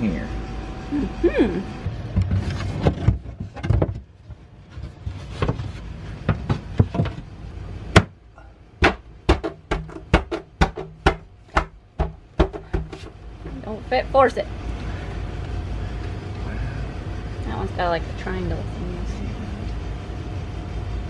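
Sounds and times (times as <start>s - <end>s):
knocks on wooden panel: 8.8s - 13.1s.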